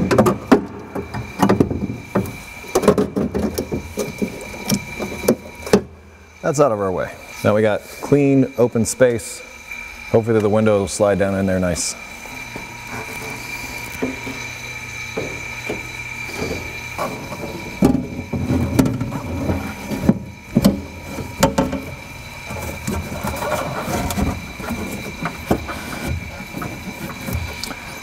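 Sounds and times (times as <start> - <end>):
window glass scraping in door: 22.5 - 26.5.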